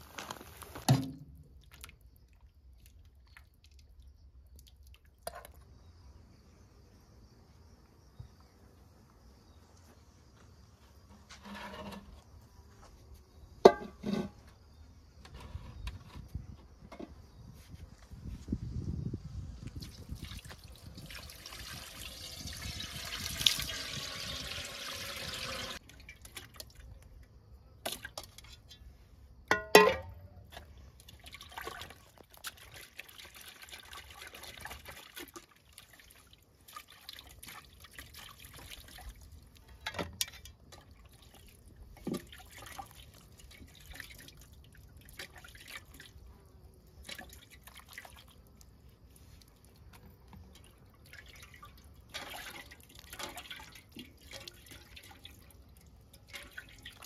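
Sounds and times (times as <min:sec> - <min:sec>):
water splashing and dripping: 0:00.8 - 0:05.7, 0:19.5 - 0:27.2, 0:29.8 - 0:57.0
water pouring into a metal pot: 0:19.8 - 0:26.8, 0:31.0 - 0:46.2, 0:46.8 - 0:57.0.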